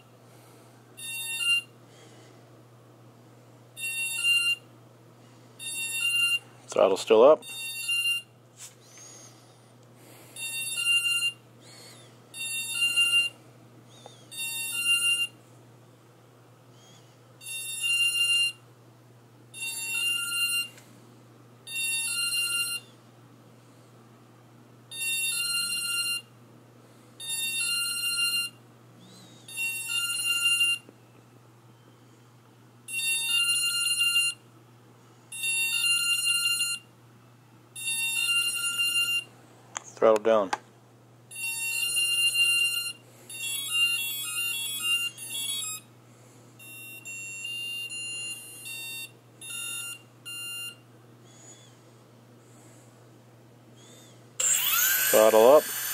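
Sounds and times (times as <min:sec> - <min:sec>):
rapid high electronic beeps: 0:54.4 - 0:55.9.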